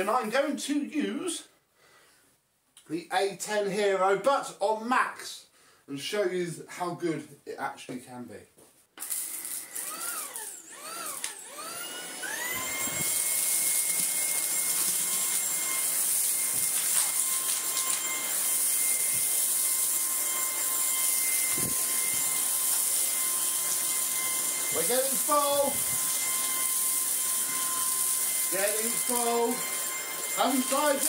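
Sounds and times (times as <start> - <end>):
vacuum motor whine: 9.0 - 31.0.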